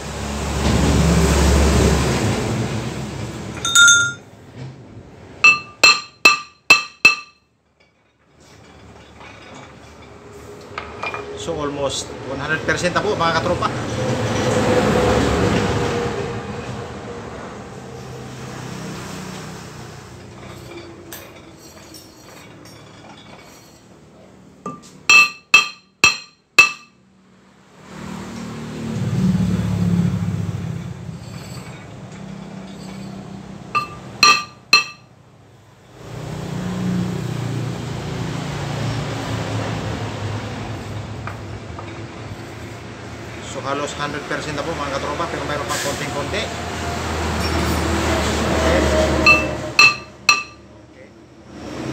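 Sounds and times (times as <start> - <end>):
hammer ringing on metal disc: 3.6 - 4.3, 5.4 - 7.4, 24.7 - 27.0, 33.8 - 35.1, 49.3 - 50.7.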